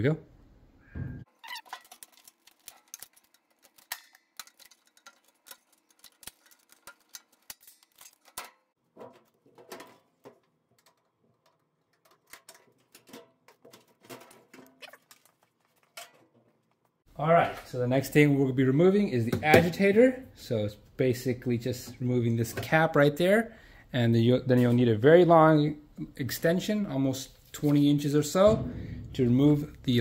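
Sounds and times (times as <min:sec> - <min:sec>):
heavier knocks: 0:28.5 - 0:30.0.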